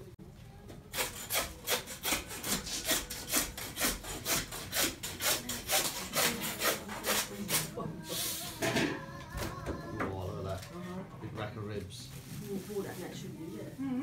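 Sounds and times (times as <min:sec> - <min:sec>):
hand saw cutting bone: 0:00.9 - 0:07.7.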